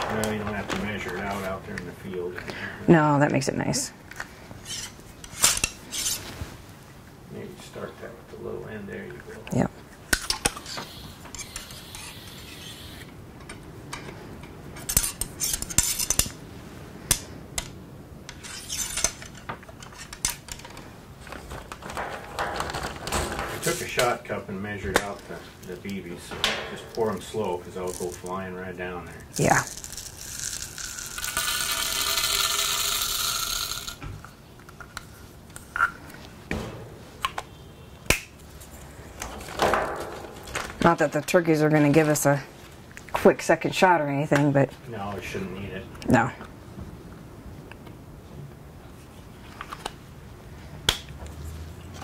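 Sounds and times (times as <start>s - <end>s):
ramrod scraping in metal barrel: 4.6s - 6.3s, 14.8s - 16.4s, 18.3s - 20.5s, 21.8s - 24.2s, 36.5s - 37.3s
lead shot rattling down barrel: 39.2s - 40.8s.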